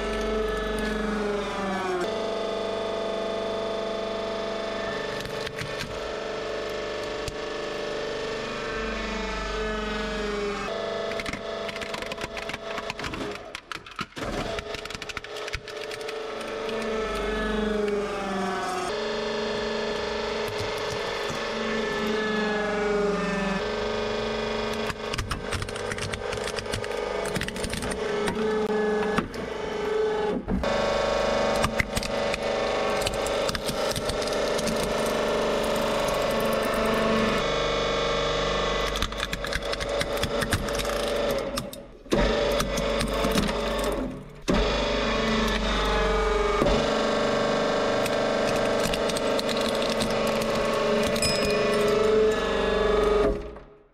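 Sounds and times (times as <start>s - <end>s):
hydraulic press motor humming: 0.0s - 13.5s, 14.2s - 53.8s
objects cracking and crunching: 32.9s - 37.1s, 48.0s - 51.2s.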